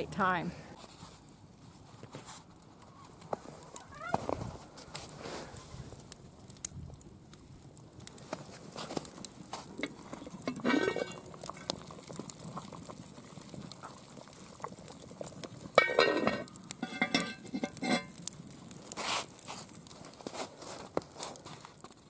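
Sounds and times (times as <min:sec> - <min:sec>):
wood fire crackling: 0:00.0 - 0:22.0
cast iron lid clanking: 0:10.4 - 0:11.7, 0:15.8 - 0:18.2.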